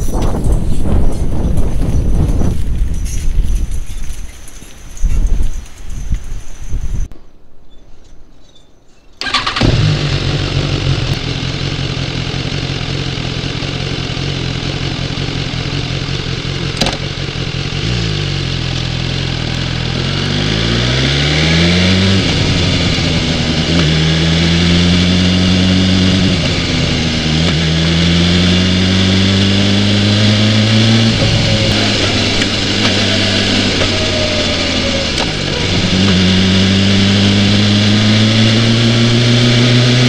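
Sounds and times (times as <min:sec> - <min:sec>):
motorcycle accelerating through gears: 0:09.2 - 0:40.0
motorcycle engine starting and idling: 0:09.2 - 0:40.0.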